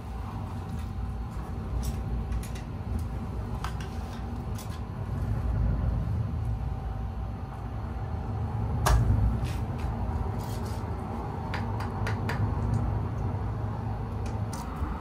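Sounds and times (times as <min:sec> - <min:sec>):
fire rushing rumble: 0:01.0 - 0:11.4.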